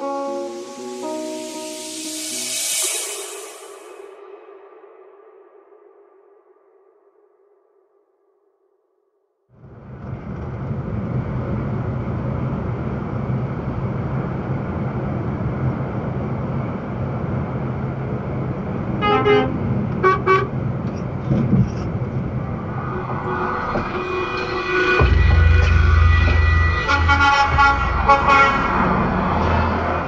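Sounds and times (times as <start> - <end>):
truck engine and road noise: 9.6 - 30.0
truck horn toots: 19.0 - 20.6, 24.0 - 29.3.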